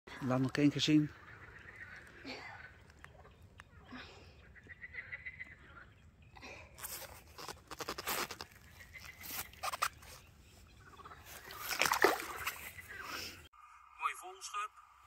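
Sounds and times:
rustling and crackling: 6.8 - 10.3.

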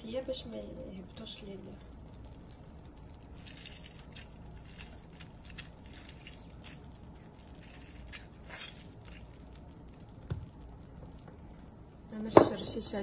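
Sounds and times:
lemon squishing and crackling: 2.1 - 11.2.

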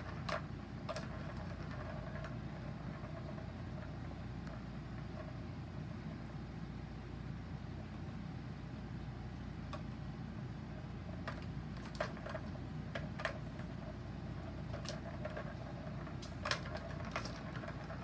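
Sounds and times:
balls clacking in plastic tracks: 0.0 - 5.4, 11.0 - 18.0.

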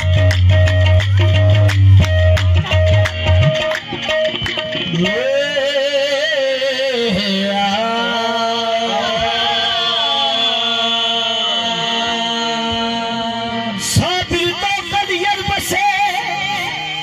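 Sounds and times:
person singing devotional song: 4.9 - 17.0.

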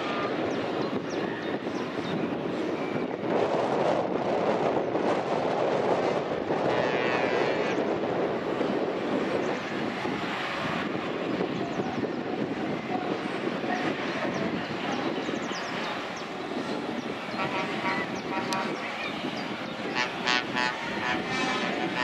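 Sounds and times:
diesel truck engines droning: 0.0 - 22.0.

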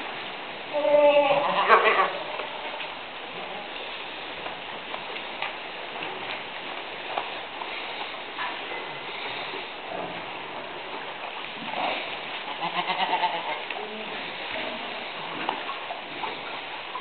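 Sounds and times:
low goat bleat: 0.7 - 2.2, 12.5 - 13.7.

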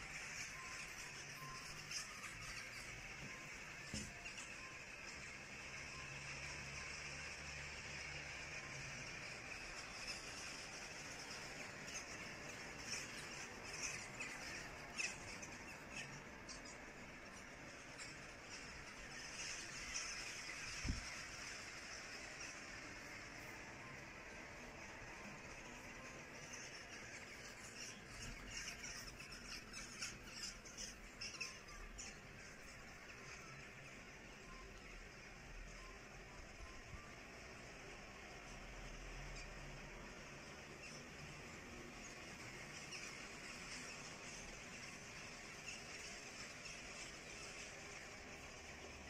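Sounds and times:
steady hiss: 0.0 - 49.0
flock of birds calling: 8.7 - 35.9.

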